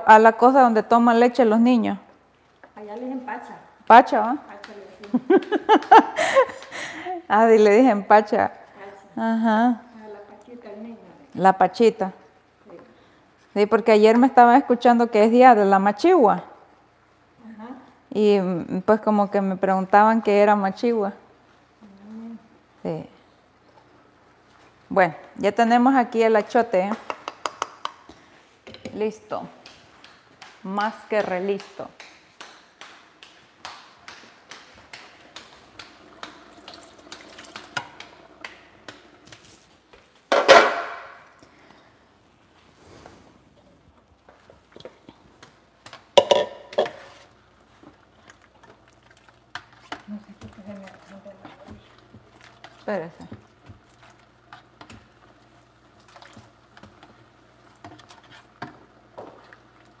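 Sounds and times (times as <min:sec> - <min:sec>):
hands patting dough: 0:26.9 - 0:28.2, 0:29.5 - 0:40.2.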